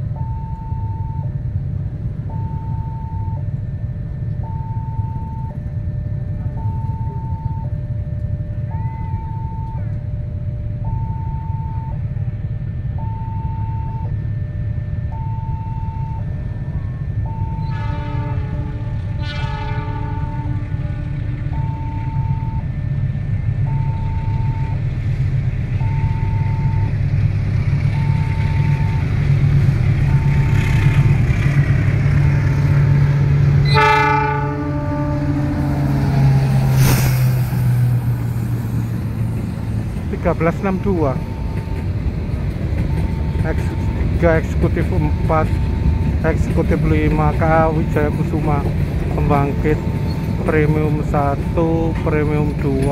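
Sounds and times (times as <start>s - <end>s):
two-tone crossing alarm: 0.0s - 1.4s, 2.2s - 25.0s, 25.8s - 36.4s, 40.2s - 52.9s
locomotive engine rumble: 0.0s - 52.9s
locomotive horn: 16.7s - 22.6s, 30.0s - 37.0s.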